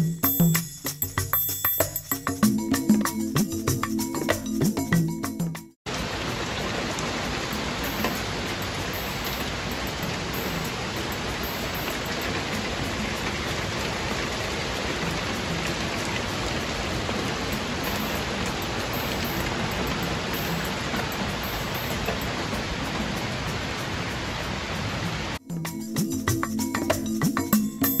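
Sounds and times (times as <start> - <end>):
rain hissing on trees: 5.9 - 25.4
raindrop patter: 5.9 - 25.4.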